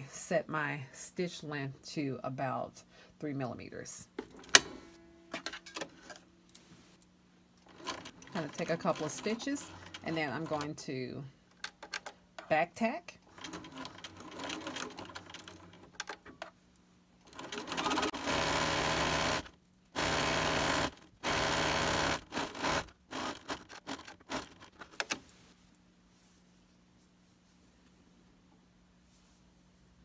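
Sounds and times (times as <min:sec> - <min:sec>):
sewing machine stitching: 0:07.6 - 0:10.7, 0:13.3 - 0:16.1, 0:17.2 - 0:24.8.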